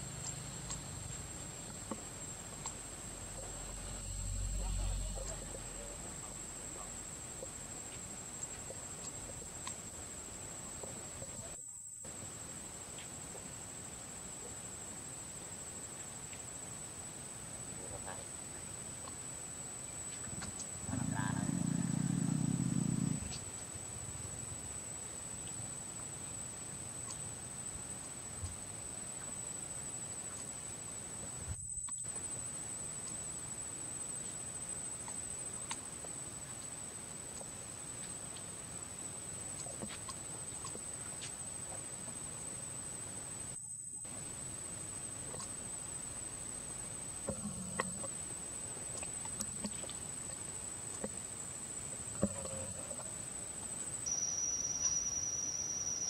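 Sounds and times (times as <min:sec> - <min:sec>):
high-pitched insect buzz: 0:54.0 - 0:56.0.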